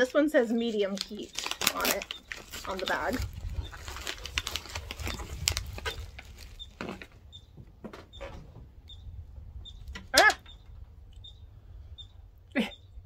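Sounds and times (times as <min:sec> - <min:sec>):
plastic snack bag crinkling: 0:00.0 - 0:07.2
wind on microphone: 0:02.2 - 0:13.0.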